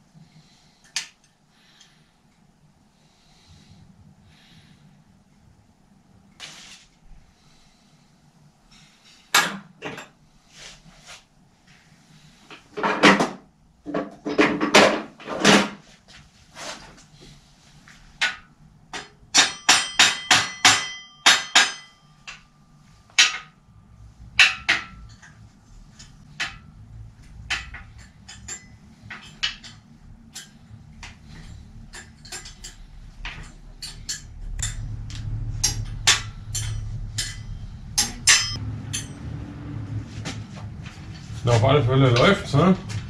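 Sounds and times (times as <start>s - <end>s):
hammer striking steel: 19.0s - 22.5s, 23.1s - 23.6s, 24.4s - 25.4s, 27.4s - 30.6s, 33.4s - 39.3s
low rumble: 33.0s - 43.0s.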